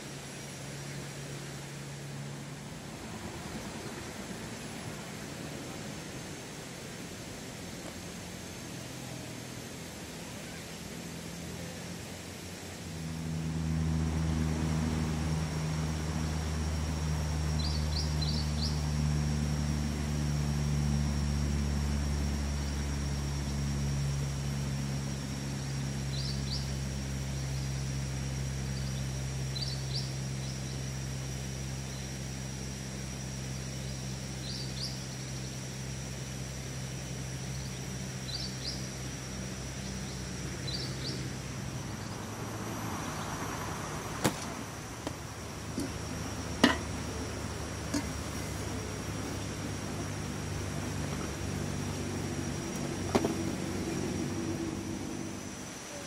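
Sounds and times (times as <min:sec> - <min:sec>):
vehicle engine low hum: 0:00.0 - 0:56.0
bird chirping: 0:17.5 - 0:18.9, 0:26.1 - 0:26.8, 0:28.7 - 0:30.8, 0:33.8 - 0:35.5, 0:37.4 - 0:42.3.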